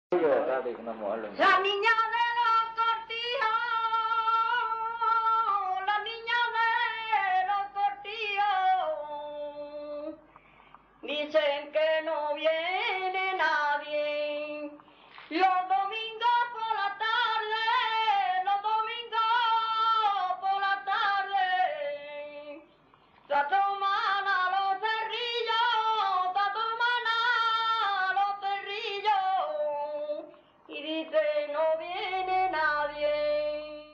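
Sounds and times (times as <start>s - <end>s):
woman singing unaccompanied: 1.4s - 10.3s, 11.0s - 33.9s
singer breathing: 10.2s - 11.0s, 14.8s - 15.3s.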